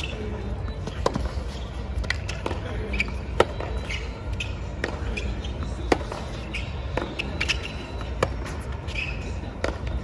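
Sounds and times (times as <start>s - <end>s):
rackets striking ball: 0.0s - 10.0s
shoe squeaks: 0.0s - 10.0s
ball bouncing: 0.8s - 1.4s, 2.0s - 8.7s, 9.6s - 10.0s.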